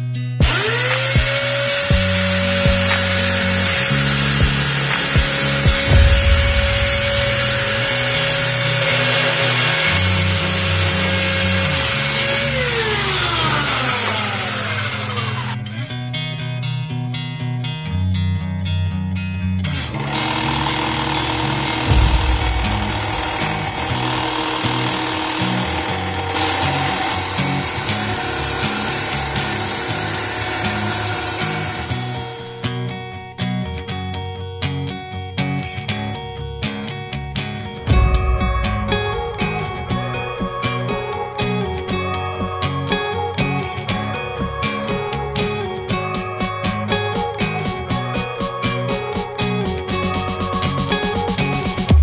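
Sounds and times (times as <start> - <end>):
belt sander grinding: 0.4 - 15.6, 19.7 - 33.0
electric jigsaw cutting wood: 0.4 - 15.6, 19.7 - 33.0
motor winding down: 0.4 - 15.6, 19.7 - 33.1.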